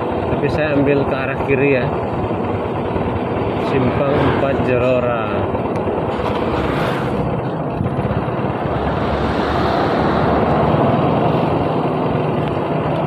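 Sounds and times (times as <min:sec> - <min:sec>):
motorcycle engine: 0:00.0 - 0:13.0
road noise: 0:00.0 - 0:13.0
wind on microphone: 0:07.0 - 0:12.7.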